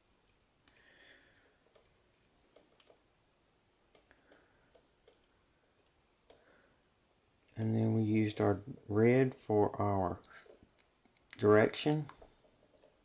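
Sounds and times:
wires ticking and clicking: 0:00.0 - 0:13.0.

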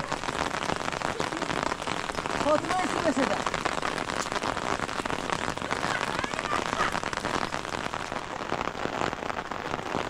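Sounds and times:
heavy rain falling: 0:00.0 - 0:10.0.

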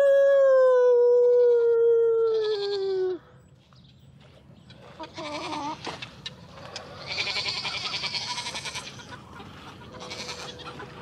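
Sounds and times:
goats bleating: 0:05.0 - 0:05.9, 0:07.0 - 0:09.1, 0:10.0 - 0:10.9.

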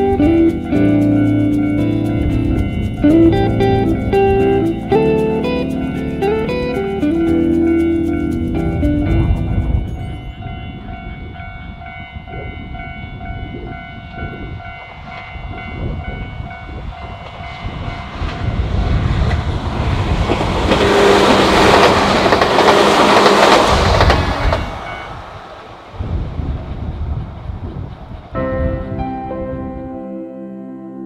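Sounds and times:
train passing: 0:00.0 - 0:29.8
level-crossing alarm ringing: 0:09.8 - 0:18.1.

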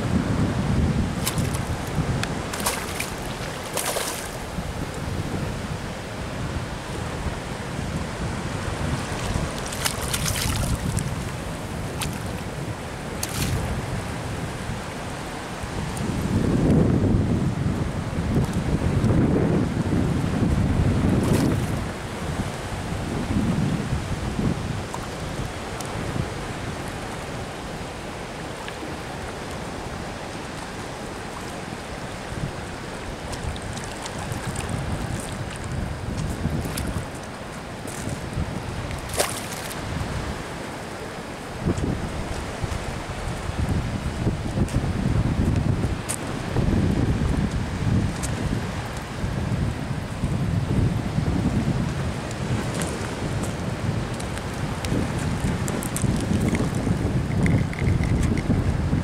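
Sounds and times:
wind buffeting microphone: 0:00.0 - 0:28.1, 0:28.8 - 0:59.0
choppy sea water: 0:00.0 - 0:59.0
sea water sloshing: 0:01.1 - 0:05.4, 0:08.4 - 0:14.8, 0:28.0 - 0:44.8
fish splashing at surface: 0:02.5 - 0:04.4
fish splashing: 0:02.5 - 0:04.6, 0:09.0 - 0:11.4.

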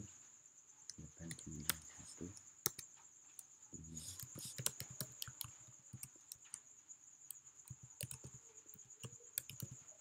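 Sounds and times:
typing on computer keyboard: 0:02.6 - 0:02.9, 0:04.0 - 0:06.6, 0:07.6 - 0:09.8.

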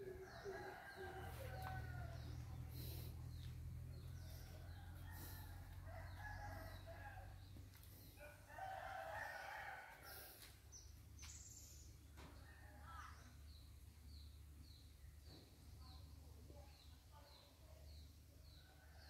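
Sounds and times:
low steady hum: 0:00.0 - 0:12.0
rooster crowing: 0:00.1 - 0:02.4, 0:04.7 - 0:07.4, 0:08.2 - 0:10.2.

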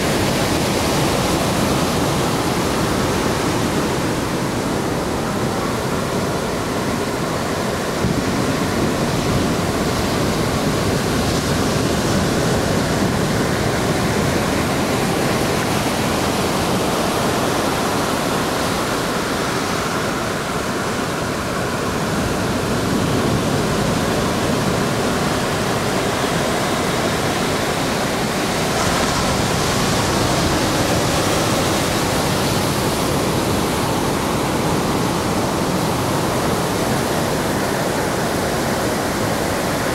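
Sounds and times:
ocean surf breaking on beach: 0:00.0 - 0:39.9.

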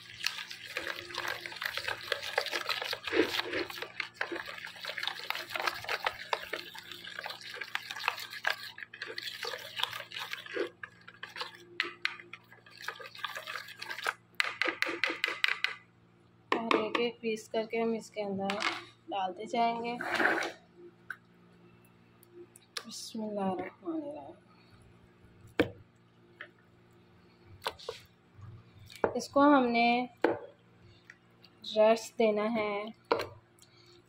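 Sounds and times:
fork whisking wet marinade: 0:00.0 - 0:15.8.

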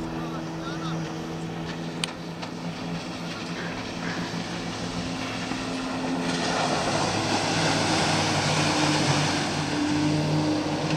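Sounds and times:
outboard motor running: 0:00.0 - 0:10.9
rush of water from hull: 0:00.0 - 0:10.9.

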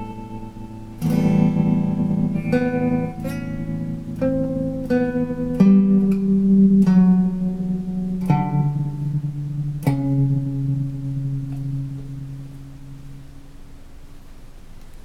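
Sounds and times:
guitar picked notes with tremolo: 0:00.0 - 0:14.3.

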